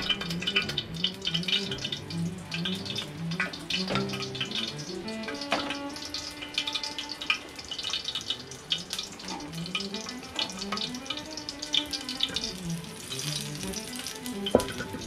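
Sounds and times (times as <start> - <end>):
soft background melody: 0.0 - 15.0
water running and splashing: 0.0 - 15.0.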